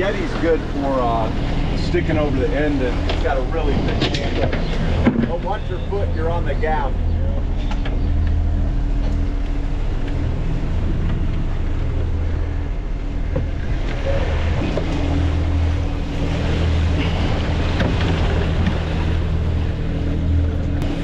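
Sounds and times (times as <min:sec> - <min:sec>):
wind on microphone: 0:00.0 - 0:06.2, 0:06.9 - 0:21.0
steady low hum: 0:00.0 - 0:21.0
water rushing past hull: 0:00.0 - 0:21.0.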